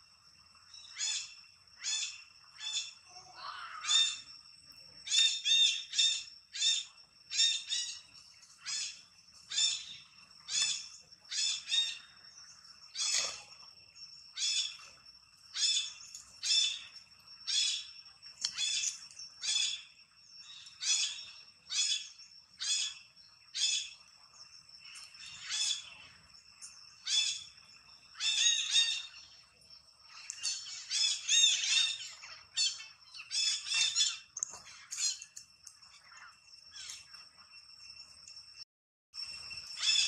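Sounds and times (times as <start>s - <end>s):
high-pitched animal calls: 30.4s - 36.1s, 39.8s - 40.0s.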